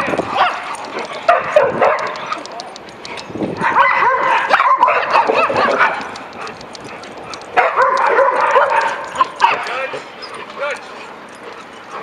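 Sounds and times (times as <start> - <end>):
dogs yipping and barking: 0.0 - 12.0.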